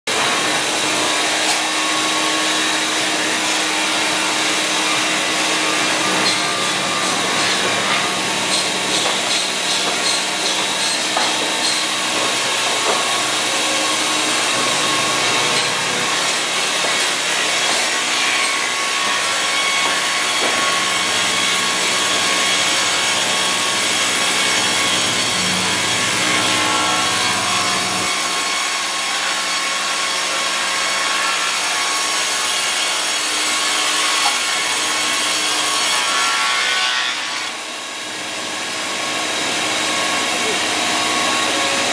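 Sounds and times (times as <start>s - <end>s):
saw blades cutting wood: 0.1s - 41.9s.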